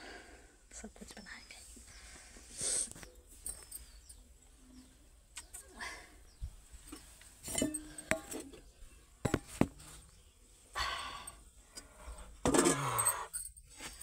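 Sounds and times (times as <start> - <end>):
handling noise: 6.8 - 10.0
metal pots clinking and knocking: 6.9 - 9.8, 12.4 - 13.2.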